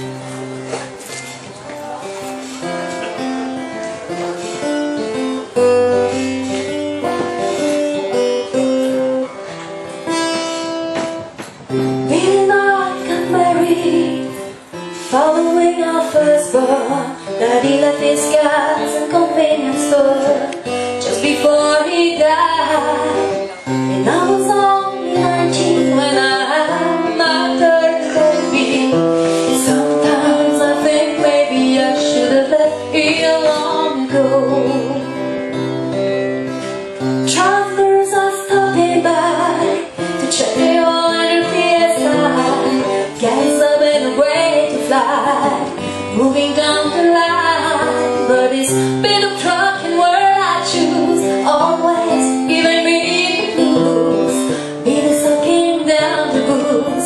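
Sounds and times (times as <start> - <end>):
acoustic guitar: 0.0 - 57.0
woman singing: 11.7 - 36.2, 36.9 - 57.0.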